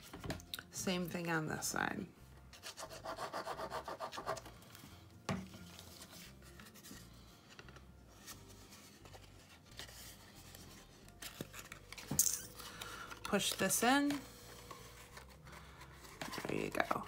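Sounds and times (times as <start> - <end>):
cardstock rustling: 5.7 - 17.0.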